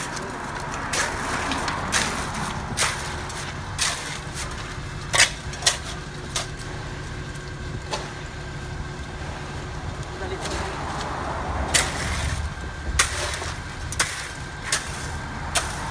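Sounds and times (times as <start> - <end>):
shovels knocking and scraping: 0.0 - 6.6, 10.4 - 15.9
concrete mixer truck running: 0.0 - 15.9.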